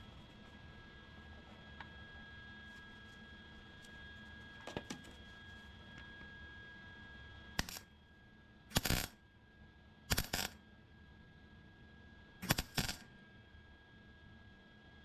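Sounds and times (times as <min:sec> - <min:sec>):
welder arc bursts: 0:07.6 - 0:07.8, 0:08.7 - 0:09.1, 0:10.1 - 0:10.6, 0:12.4 - 0:13.0.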